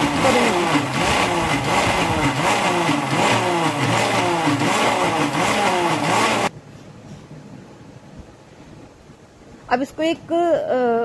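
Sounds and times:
mixer grinder motor whirring: 0.0 - 6.5.

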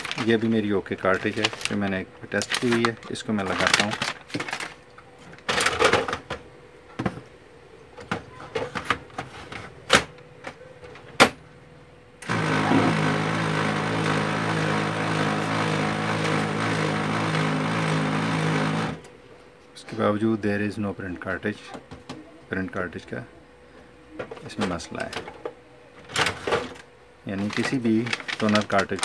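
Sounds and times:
printer motor humming: 12.2 - 19.2.

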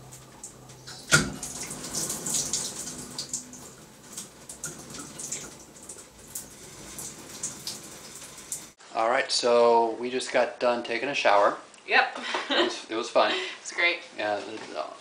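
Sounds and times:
shower water running and splashing: 0.0 - 8.8.

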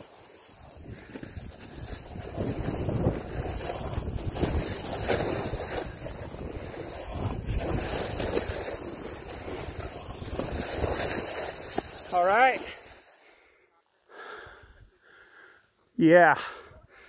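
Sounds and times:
skis scraping on snow: 0.0 - 13.7
wind buffeting microphone: 0.7 - 10.9.

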